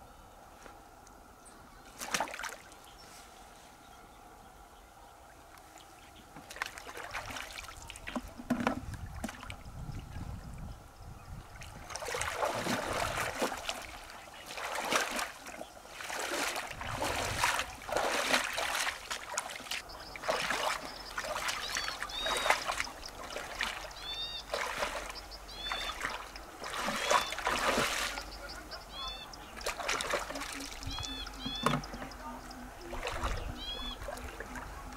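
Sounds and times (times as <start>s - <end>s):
wading through shallow water: 0.4s - 4.3s, 5.0s - 34.9s.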